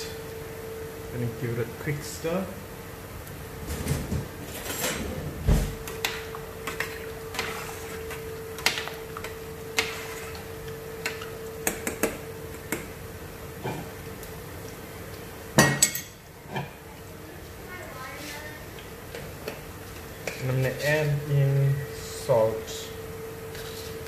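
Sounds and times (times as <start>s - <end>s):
faint hum: 0.0s - 24.0s.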